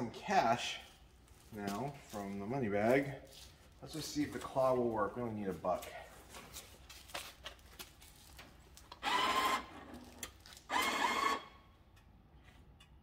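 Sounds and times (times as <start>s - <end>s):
bill acceptor motor whirring: 9.0s - 9.7s, 10.7s - 11.5s.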